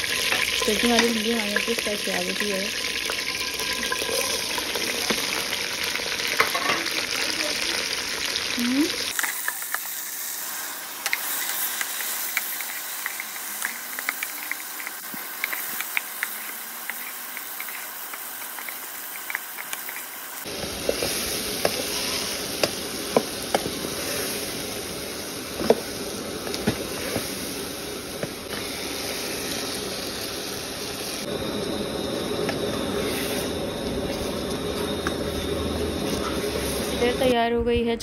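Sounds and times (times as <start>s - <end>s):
okra sizzling in oil: 0.0s - 37.3s.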